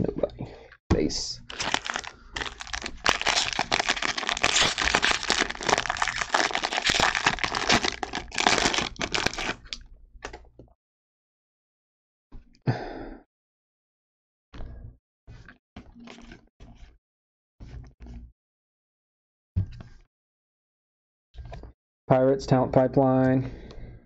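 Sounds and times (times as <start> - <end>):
foil wrapper crinkling: 1.5 - 9.8.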